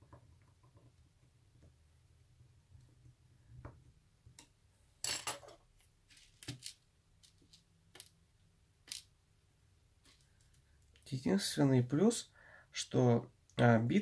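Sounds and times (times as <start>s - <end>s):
small screwdriver and screws clinking: 8.9s - 9.1s.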